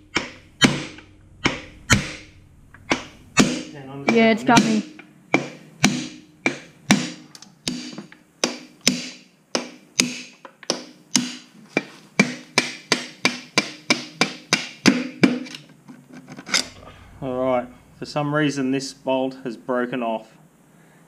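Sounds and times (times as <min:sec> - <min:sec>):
hammer striking metal drift: 0:00.0 - 0:10.3.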